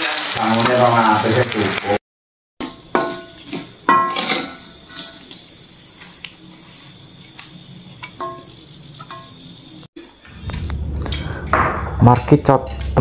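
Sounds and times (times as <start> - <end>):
metal utensils scraping a wok: 2.6 - 5.4
faint cricket trill: 2.7 - 10.5.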